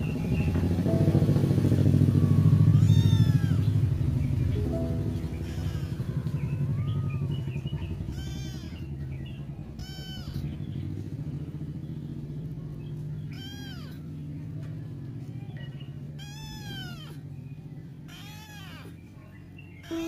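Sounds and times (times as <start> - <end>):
steady low hum: 0.0 - 13.3
kitten meowing: 2.0 - 3.9, 4.7 - 10.6, 13.2 - 14.1, 16.1 - 17.2, 18.1 - 19.0, 19.8 - 20.0.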